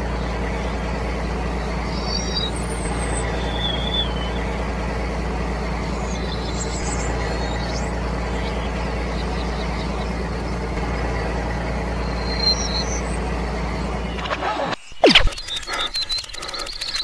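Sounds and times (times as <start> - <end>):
tractor engine running: 0.0 - 17.0
faint high chirps: 1.8 - 4.6, 11.9 - 17.0.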